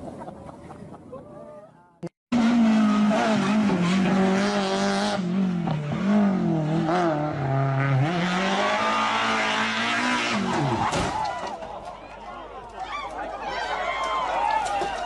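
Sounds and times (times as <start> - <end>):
car engine revving hard: 2.3 - 10.9.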